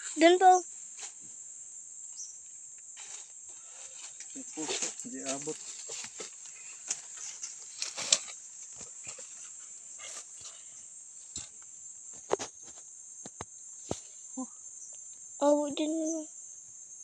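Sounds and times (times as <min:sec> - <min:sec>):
insects chirring: 0:00.0 - 0:17.0
dry leaves rustling and snapping: 0:03.9 - 0:09.5.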